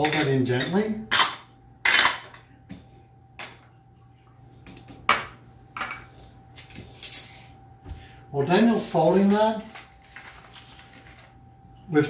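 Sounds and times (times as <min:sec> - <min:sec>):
utensils clinking on metal bowl: 0:00.0 - 0:02.4, 0:04.6 - 0:07.6.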